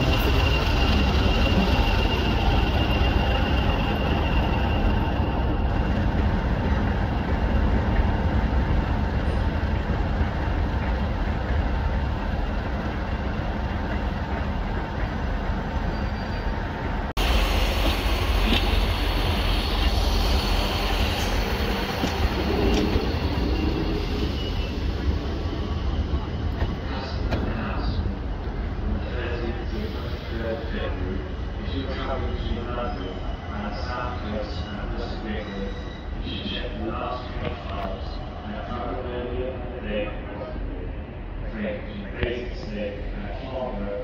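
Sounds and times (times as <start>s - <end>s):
diesel locomotive rumbling: 0.0s - 44.0s
rail rumble: 0.0s - 44.0s
faint high whistle: 22.5s - 25.0s.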